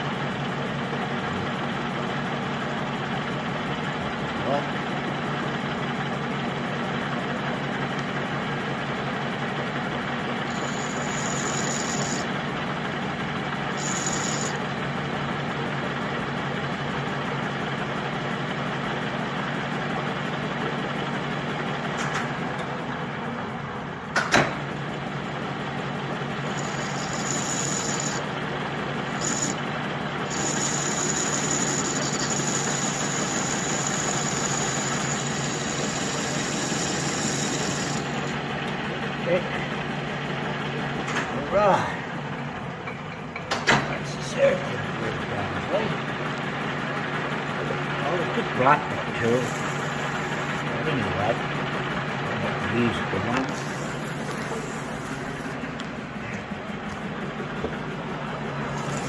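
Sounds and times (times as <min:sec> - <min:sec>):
lathe humming: 0:09.6 - 0:15.3, 0:25.0 - 0:40.7, 0:44.8 - 0:59.0.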